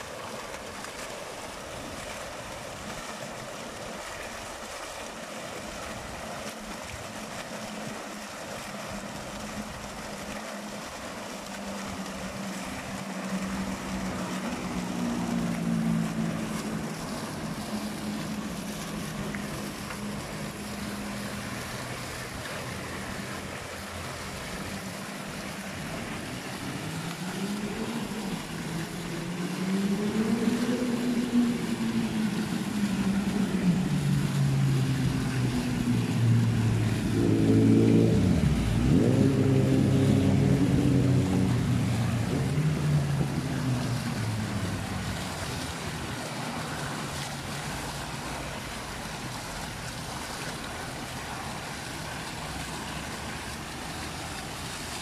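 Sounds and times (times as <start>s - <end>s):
fountain water splashing: 0.0s - 55.0s
vehicle engine passing by: 11.5s - 49.2s.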